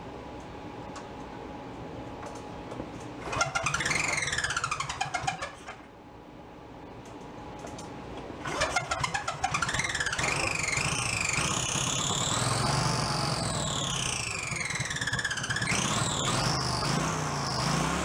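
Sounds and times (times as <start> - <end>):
engine starting and revving: 3.2 - 5.8, 8.4 - 18.0.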